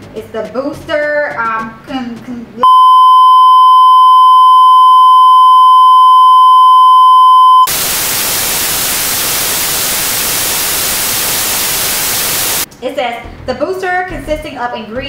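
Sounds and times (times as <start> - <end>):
high test-tone beep: 2.6 - 7.7
tv static hiss: 6.0 - 12.7.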